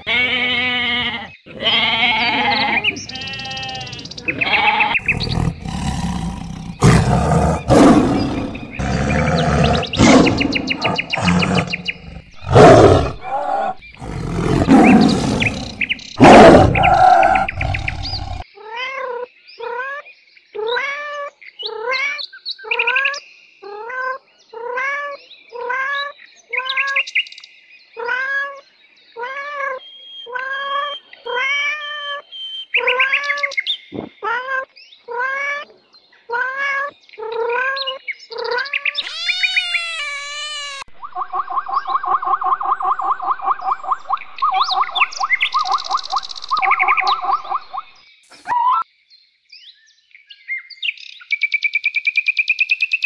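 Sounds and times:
cat meowing: 0.0s - 5.0s, 39.0s - 41.0s
tiger growling and roaring: 2.9s - 18.4s.

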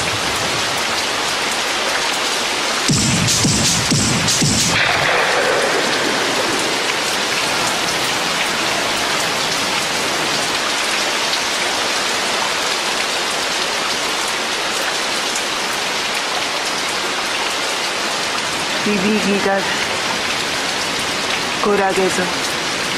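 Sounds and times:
raindrop ticks: 0.0s - 11.6s, 13.8s - 17.6s
rain hissing: 0.0s - 22.9s.

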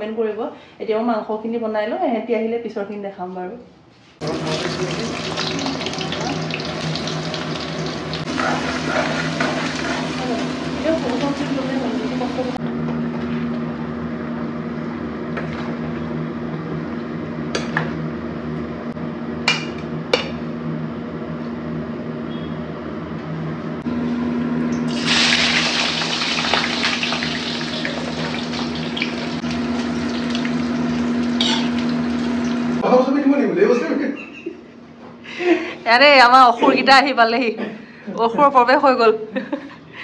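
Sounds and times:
potatoes sizzling in hot oil: 4.2s - 12.6s, 24.8s - 32.8s
stove humming: 4.2s - 33.6s.

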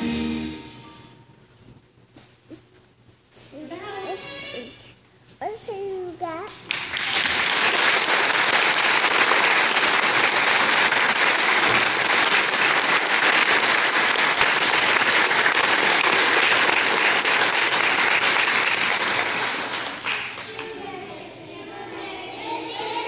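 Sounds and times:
large crowd applauding: 6.6s - 20.7s.

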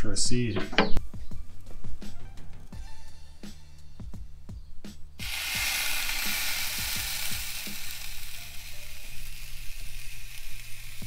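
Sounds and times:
background music with low beat: 0.0s - 11.0s
steak sizzling on a grill: 5.2s - 11.0s.

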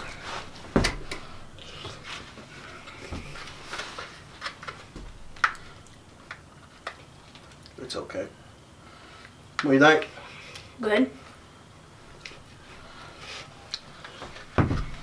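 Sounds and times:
dull knock: 14.6s - 15.0s.

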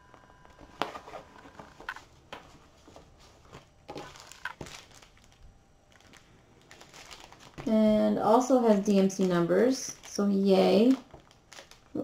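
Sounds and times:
rustling and crinkling plastic: 0.5s - 12.0s.

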